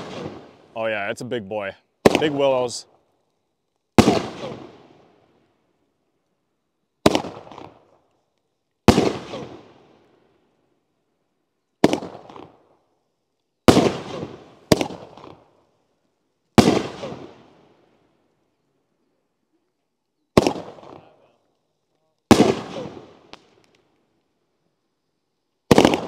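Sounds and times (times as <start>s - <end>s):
firework shells bursting: 0.0s - 0.8s, 2.0s - 5.1s, 7.0s - 10.2s, 11.8s - 12.9s, 13.6s - 15.6s, 20.3s - 24.2s, 25.6s - 26.0s.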